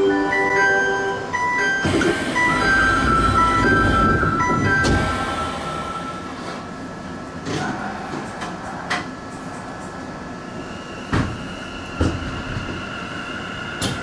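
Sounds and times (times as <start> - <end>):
electric train motor whine: 1.2 - 6.7
train clunks and thuds: 1.8 - 5.6, 11.1 - 12.8, 13.8 - 14.0.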